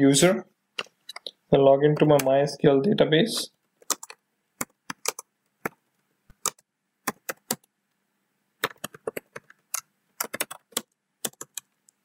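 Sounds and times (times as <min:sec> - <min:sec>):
computer keyboard keystrokes: 0:03.8 - 0:07.7, 0:08.6 - 0:11.7.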